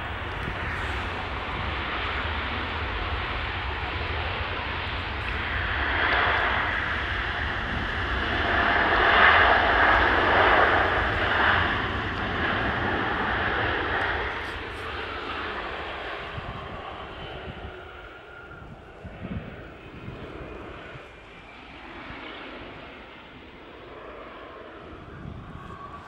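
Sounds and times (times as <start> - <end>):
airliner engine noise passing: 0.0 - 26.0.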